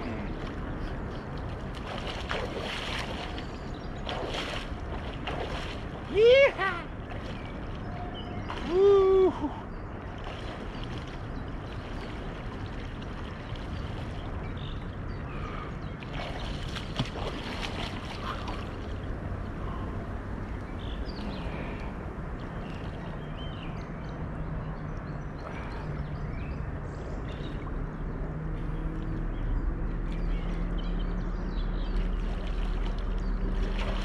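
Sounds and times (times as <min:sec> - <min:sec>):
swimming splashes: 0:00.0 - 0:14.6, 0:15.4 - 0:19.1, 0:31.8 - 0:34.0
water noise: 0:00.0 - 0:34.0
wind: 0:00.0 - 0:34.0.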